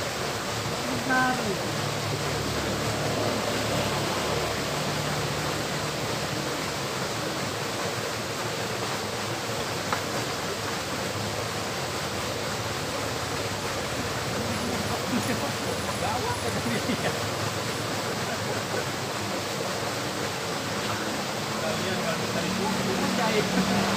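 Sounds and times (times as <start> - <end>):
water flowing in a stream: 0.0 - 23.9.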